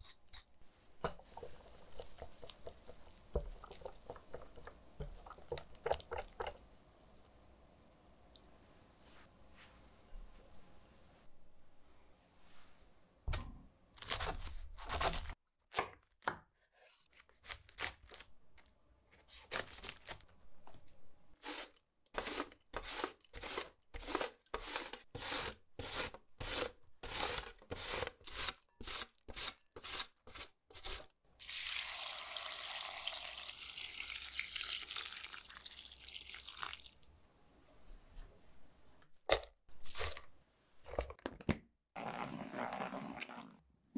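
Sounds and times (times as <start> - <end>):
water pouring into bowl: 31.4 - 37.2.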